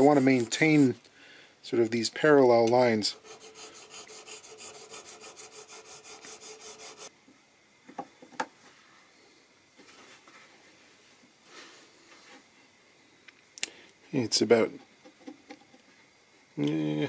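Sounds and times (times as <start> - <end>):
metal file scraping brass: 0.0 - 1.0, 3.1 - 7.1.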